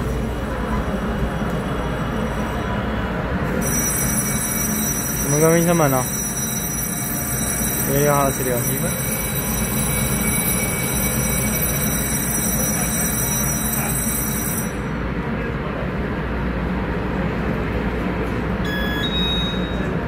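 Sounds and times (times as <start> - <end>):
train low rumble: 0.0 - 5.4
beeping tone: 18.6 - 20.0.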